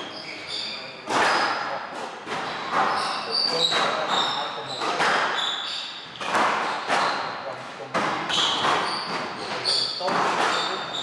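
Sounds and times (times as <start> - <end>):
shoes squeaking on court: 0.0 - 1.0, 2.4 - 7.4, 8.3 - 11.0
squash ball hits echoing: 1.0 - 11.0.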